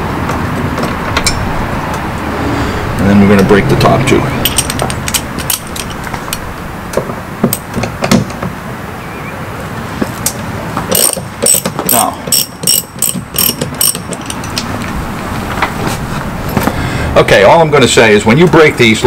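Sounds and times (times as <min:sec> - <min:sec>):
ratchet clicking: 0:10.9 - 0:14.6.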